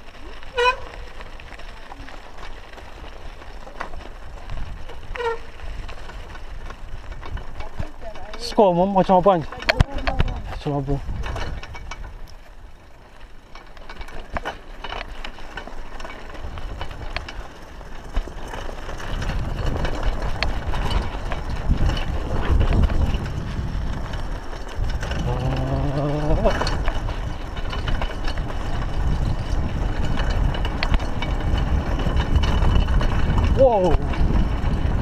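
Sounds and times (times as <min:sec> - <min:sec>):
wind noise on microphone: 0:00.0 - 0:08.2, 0:09.5 - 0:13.2, 0:13.8 - 0:35.0
bike clicks and rattles: 0:00.0 - 0:35.0
tyre noise on dirt: 0:00.0 - 0:35.0
man humming: 0:25.2 - 0:26.4.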